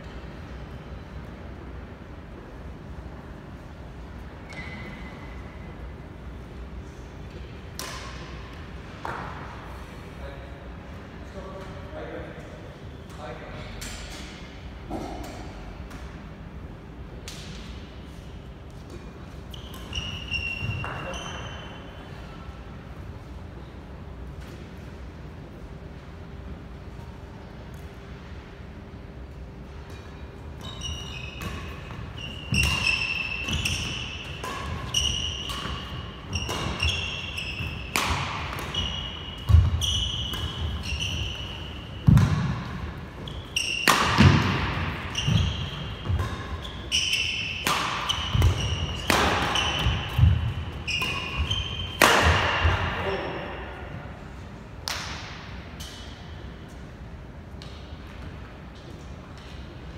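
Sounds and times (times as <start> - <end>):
shoe squeaks on court floor: 4.4 - 5.4, 19.0 - 22.2, 30.1 - 53.5
racket striking shuttlecock: 32.5 - 41.3, 42.0 - 42.9, 43.6 - 53.0.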